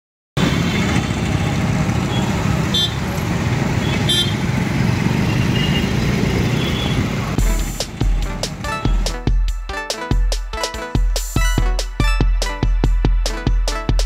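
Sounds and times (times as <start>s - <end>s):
motorcycle moving: 0.4s - 9.5s
road traffic noise: 0.4s - 14.0s
vehicle horn toots: 2.1s - 3.1s, 3.8s - 4.5s, 5.3s - 7.8s.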